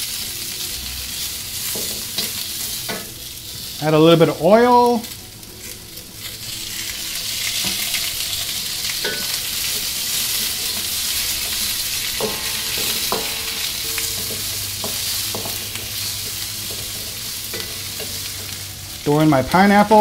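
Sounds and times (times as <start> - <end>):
vegetables sizzling in hot oil: 0.0 - 20.0
spatula knocking and scraping wok: 1.6 - 3.2, 7.5 - 18.7.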